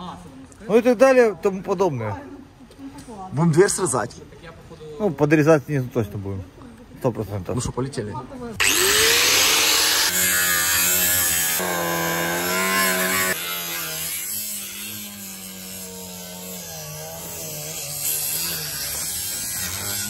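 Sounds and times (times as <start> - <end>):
angle grinder cutting metal: 8.6 - 20.0.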